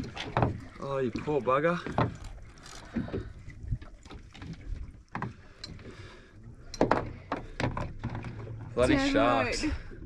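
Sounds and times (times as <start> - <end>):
water lapping: 0.0 - 10.0
wind: 0.0 - 10.0
knocks on boat: 0.2 - 0.6.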